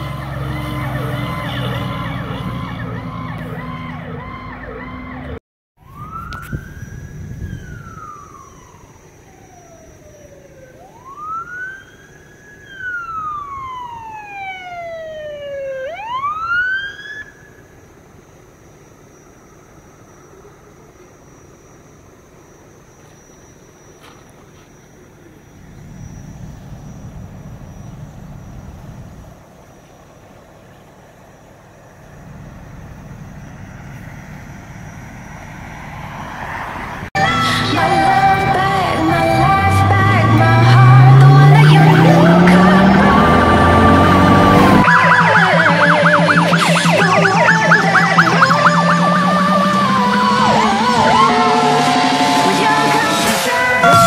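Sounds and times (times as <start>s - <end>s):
diesel engine rumbling: 0.0s - 9.5s, 17.3s - 54.0s
emergency siren wailing: 0.0s - 17.8s, 32.2s - 54.0s.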